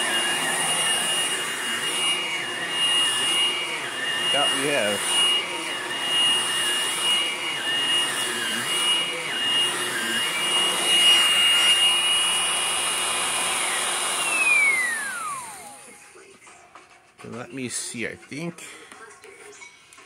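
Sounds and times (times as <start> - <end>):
vacuum cleaner motor whine: 0.0 - 16.3.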